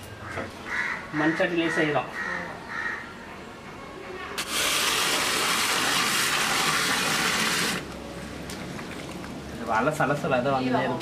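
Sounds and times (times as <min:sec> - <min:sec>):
water pouring from a hose: 0:04.4 - 0:07.9.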